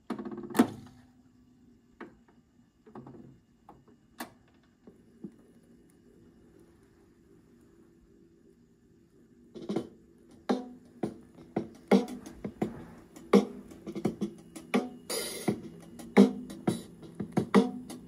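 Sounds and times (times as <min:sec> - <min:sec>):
drum-driven music from record player: 0:09.5 - 0:18.0.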